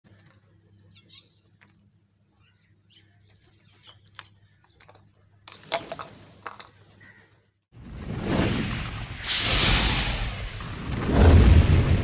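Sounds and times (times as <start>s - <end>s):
crows calling: 5.9s - 7.5s.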